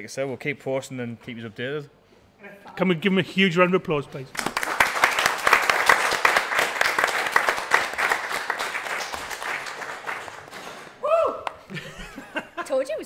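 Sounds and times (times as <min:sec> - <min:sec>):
audience applauding: 0:04.4 - 0:11.6.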